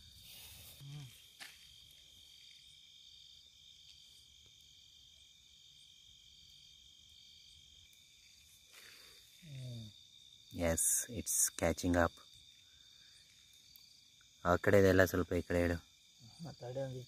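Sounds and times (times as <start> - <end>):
crickets trilling: 0.0 - 17.0.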